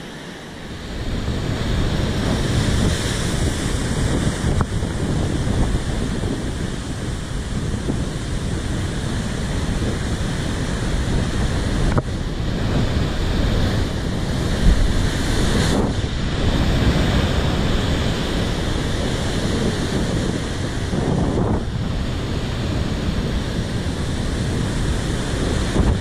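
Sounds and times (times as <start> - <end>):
ocean surf breaking on rocks: 0.0 - 26.0
wind buffeting microphone: 0.6 - 26.0
wave slamming into rocks: 12.6 - 26.0.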